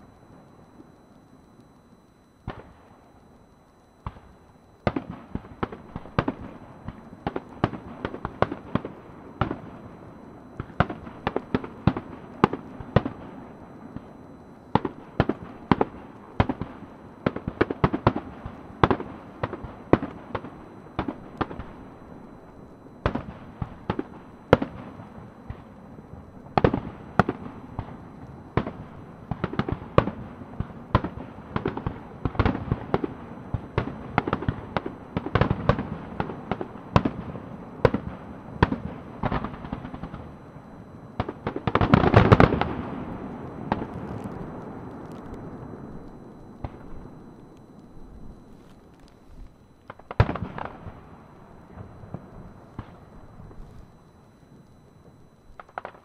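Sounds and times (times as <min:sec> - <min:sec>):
fireworks bangs: 0:41.2 - 0:47.8, 0:48.5 - 0:53.9.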